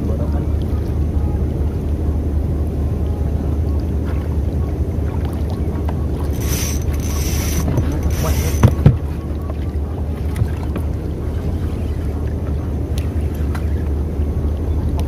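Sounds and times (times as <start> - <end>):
spinning reel buzzing: 6.3 - 8.8
knocks against wooden hull: 7.7 - 9.2.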